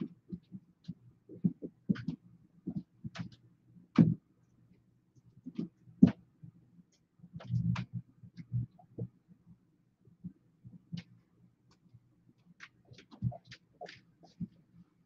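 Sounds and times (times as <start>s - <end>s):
knocks and thumps: 1.4s - 4.2s.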